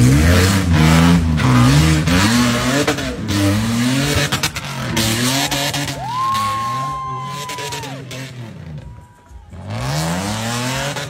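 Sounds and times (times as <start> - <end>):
truck engine revving: 0.0 - 11.0.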